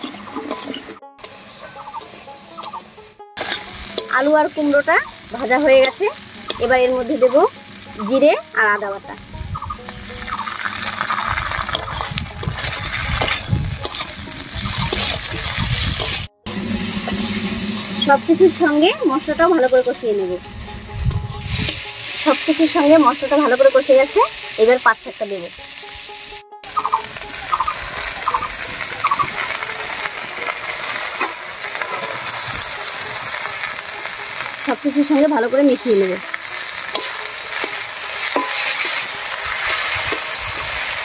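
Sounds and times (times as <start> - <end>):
metal spatula scraping pan: 0.0 - 1.4, 10.4 - 19.6, 36.5 - 41.0
vegetables sizzling in oil: 0.0 - 41.0.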